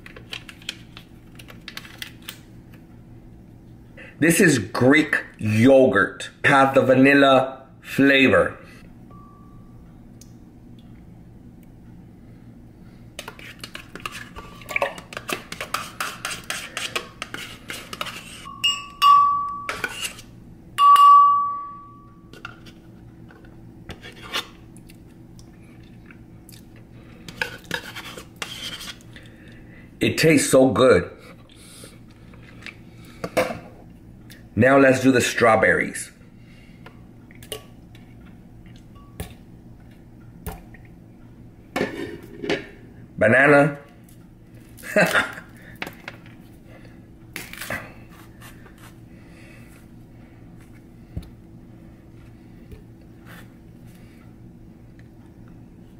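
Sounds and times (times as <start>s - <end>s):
metal spoon scraping and clinking: 13.3s - 20.3s.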